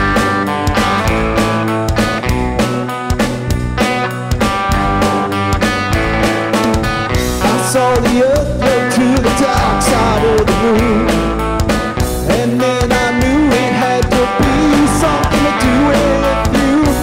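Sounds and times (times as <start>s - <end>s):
electric guitar: 0.0s - 17.0s
steady drum beat: 0.0s - 17.0s
man singing: 7.2s - 11.4s, 12.2s - 17.0s.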